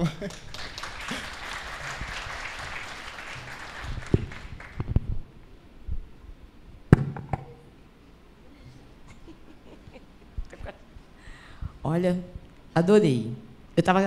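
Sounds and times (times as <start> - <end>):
applause: 0.0 - 5.0
microphone handling thumps: 4.0 - 5.3.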